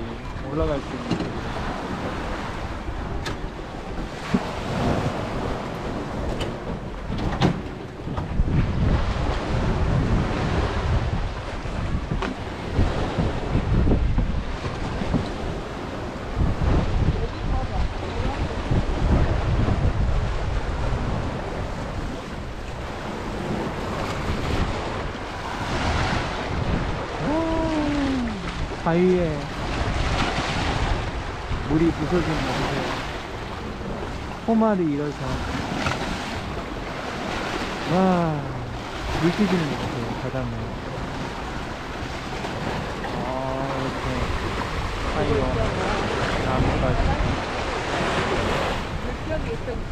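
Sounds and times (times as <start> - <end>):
wind on microphone: 0.0 - 49.9
sea waves washing onto rocks: 8.2 - 49.9.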